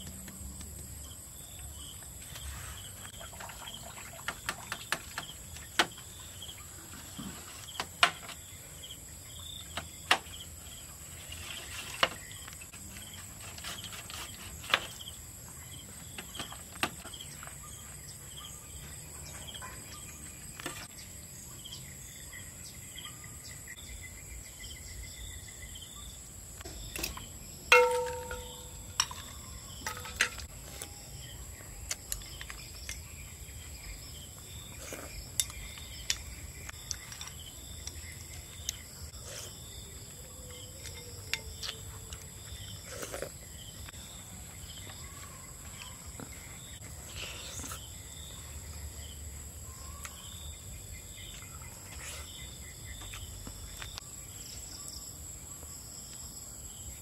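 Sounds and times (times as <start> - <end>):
crickets chirring: 0.0 - 57.0
short ringing clink: 27.7 - 29.1.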